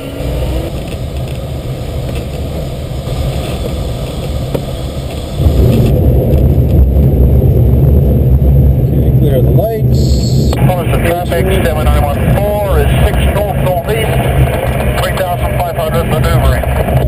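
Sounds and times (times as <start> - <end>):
airflow rushing past cockpit: 0.0 - 17.0
wheel rolling along runway: 0.6 - 8.7, 10.9 - 17.0.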